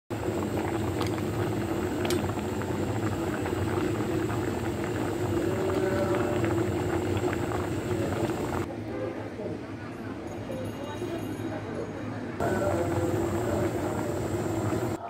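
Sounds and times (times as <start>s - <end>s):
rice boiling and bubbling: 0.1s - 8.7s, 12.4s - 15.0s.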